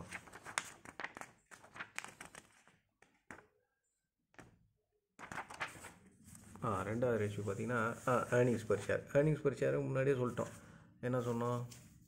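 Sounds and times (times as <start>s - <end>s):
paper rustling: 0.0s - 3.5s, 5.2s - 8.9s, 11.2s - 12.0s.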